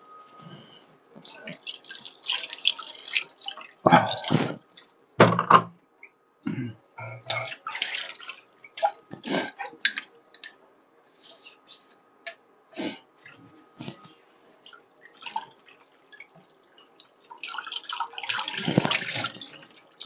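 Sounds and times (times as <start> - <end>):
water splashing and dripping: 1.2 - 5.2, 7.3 - 9.2, 14.6 - 20.0
dishes knocking together: 5.2 - 5.7.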